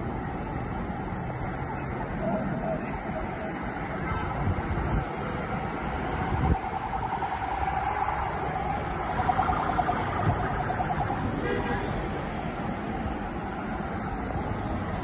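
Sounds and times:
road traffic rumble: 0.0s - 15.0s
distant siren warbling: 1.3s - 4.8s, 5.7s - 11.7s.

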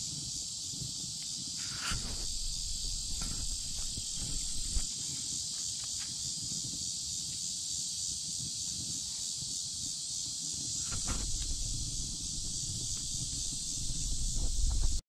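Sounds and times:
insects chorus: 0.0s - 15.0s
microphone rumble: 1.8s - 4.9s, 10.8s - 15.0s.

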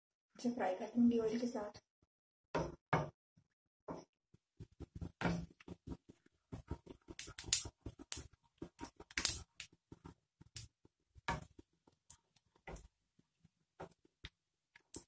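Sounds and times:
wooden spatula scraping pan: 4.6s - 10.6s
seeds frying in hot oil: 4.6s - 15.0s.

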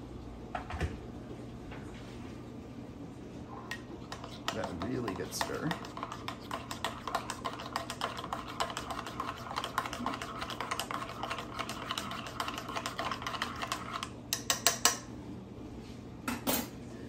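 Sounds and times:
fork clicking against cup: 3.7s - 15.0s.

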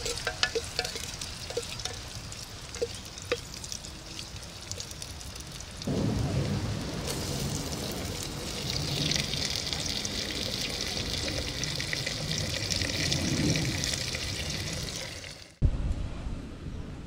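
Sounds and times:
chicken sizzling in a pot: 0.0s - 5.9s.

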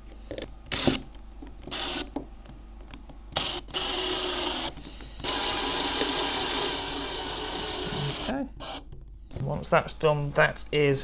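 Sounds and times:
cordless drill driving screw: 0.7s - 1.0s, 1.7s - 2.1s, 3.4s - 8.8s.

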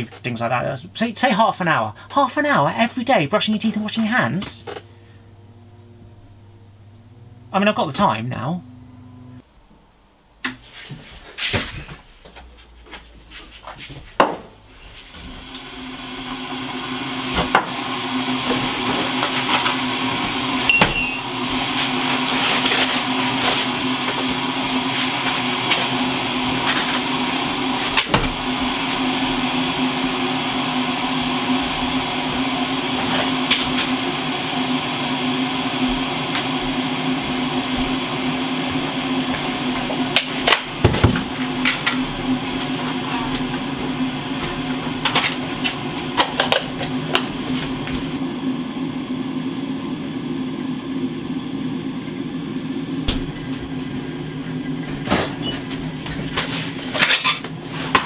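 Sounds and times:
electric kettle heating: 0.0s - 10.7s, 14.2s - 58.0s.

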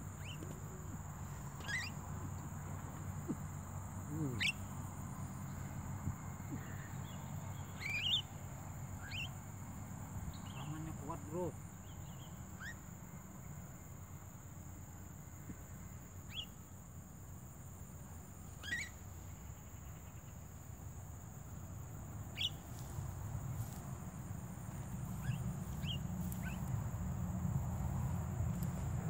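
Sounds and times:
bird rising calls: 1.6s - 2.0s, 18.6s - 19.0s, 22.3s - 22.9s, 25.0s - 26.9s
steady high whine: 17.8s - 29.0s.

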